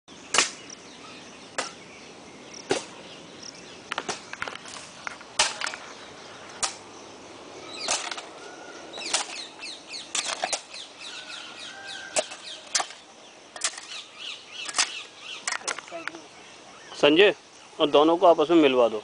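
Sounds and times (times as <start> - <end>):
hoe and shovel chopping earth: 0.3 - 0.7, 1.5 - 1.8, 2.6 - 3.0, 3.9 - 5.8, 7.8 - 10.9, 12.0 - 15.8.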